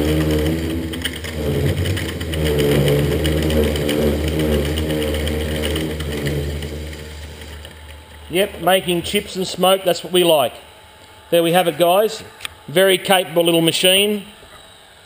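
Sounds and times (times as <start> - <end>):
drill bit cutting steel whine: 0.0 - 10.2
milling machine spindle motor hum: 0.0 - 15.0.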